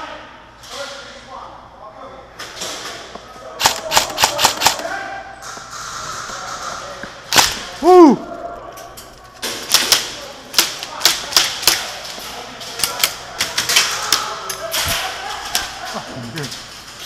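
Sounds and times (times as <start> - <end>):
airsoft gunfire clicks: 3.6 - 4.8
sharp crack: 7.3 - 7.9
short shout: 7.8 - 8.2.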